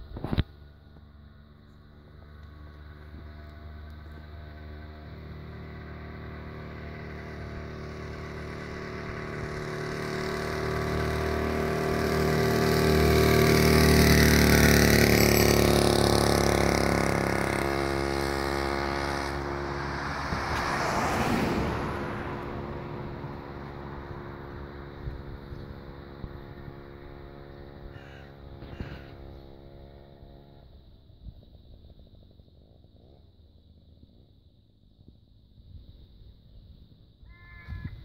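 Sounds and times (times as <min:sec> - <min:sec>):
motorised bicycle engine buzzing: 0:00.2 - 0:20.0, 0:23.6 - 0:33.2.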